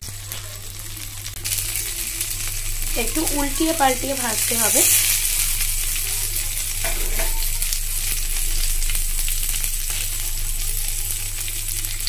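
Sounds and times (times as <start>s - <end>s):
skewers sizzling in hot oil: 0.0s - 12.0s
metal spatula scraping griddle: 6.8s - 7.7s.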